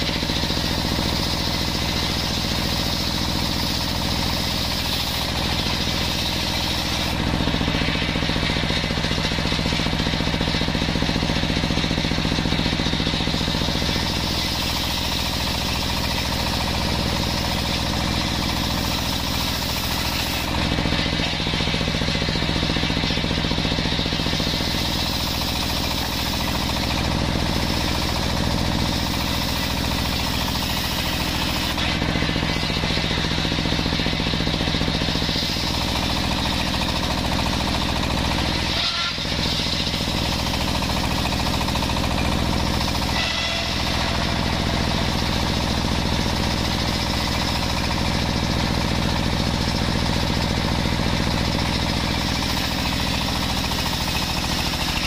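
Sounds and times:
circular saw cutting wood: 0.0s - 55.0s.

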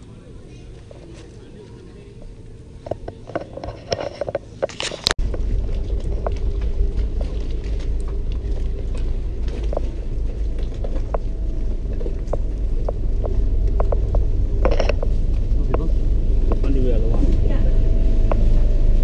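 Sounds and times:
boat engine idling: 5.2s - 19.0s.

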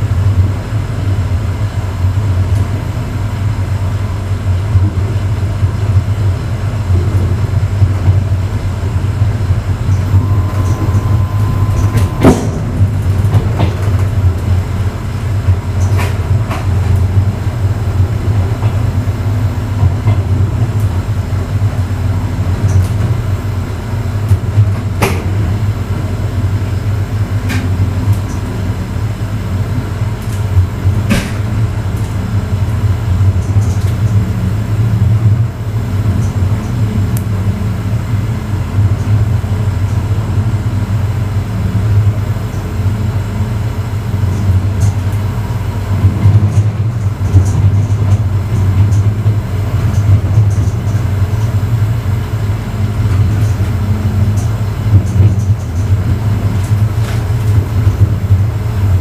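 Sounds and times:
train car rumbling on track: 0.0s - 59.0s
sharp knocks of train: 7.0s - 21.9s, 24.2s - 25.7s, 30.9s - 31.8s
brief high whine: 8.9s - 15.2s.

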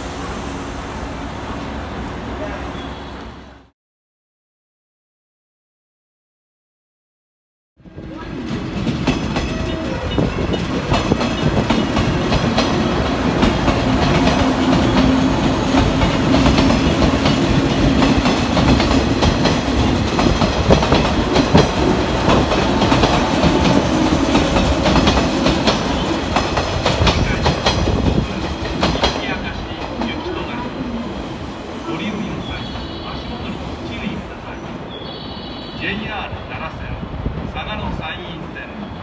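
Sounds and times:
train running gear hum: 7.8s - 34.8s
train wheels clattering: 8.4s - 30.2s.

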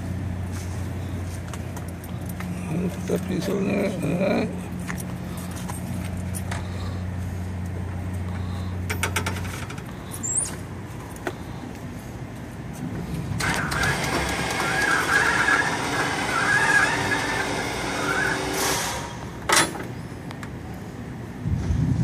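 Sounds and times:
grinding with high squeal: 13.4s - 19.3s
motorcycle lift humming: 13.4s - 20.1s.

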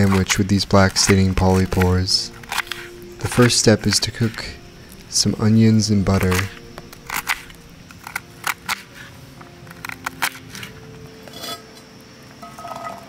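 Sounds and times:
knife scraping board: 0.0s - 4.5s.

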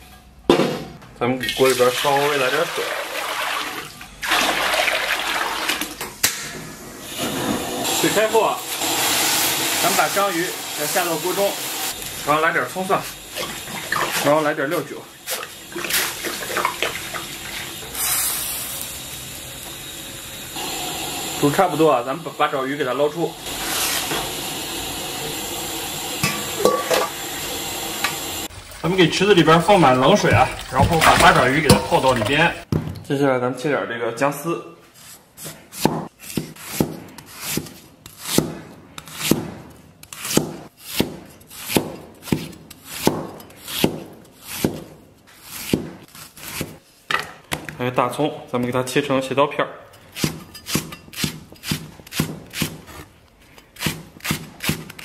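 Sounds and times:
water boiling hard in a wok: 7.6s - 14.3s, 23.4s - 32.7s.

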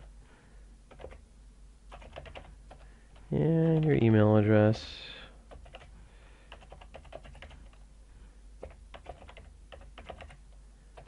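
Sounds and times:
typing on computer keyboard: 0.9s - 1.2s, 1.9s - 4.0s, 5.5s - 5.9s, 6.5s - 7.8s, 8.6s - 10.4s.

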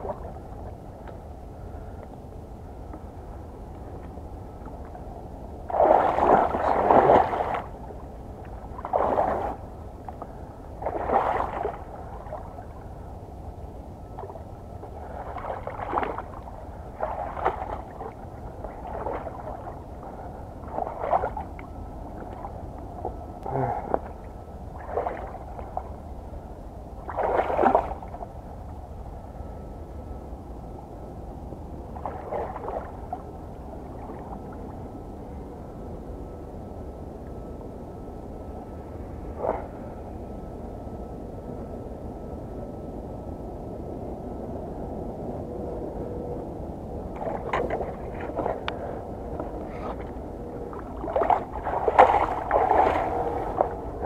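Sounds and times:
water splashing: 0.0s - 0.7s, 5.6s - 9.6s, 10.8s - 12.8s, 14.1s - 23.2s, 23.8s - 26.0s, 27.0s - 28.3s, 32.0s - 33.2s, 47.2s - 54.0s
low background rumble: 0.0s - 54.0s.

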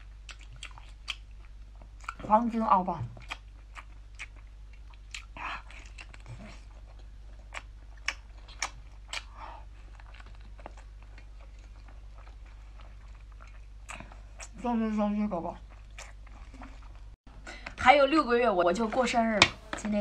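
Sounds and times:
person chewing with wet mouth clicks: 0.0s - 2.3s, 3.2s - 14.6s, 15.7s - 17.0s.

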